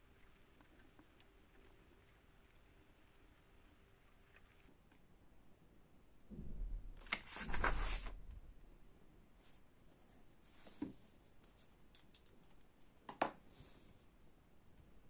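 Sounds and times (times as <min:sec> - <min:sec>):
paper rustling: 0:07.0 - 0:08.2.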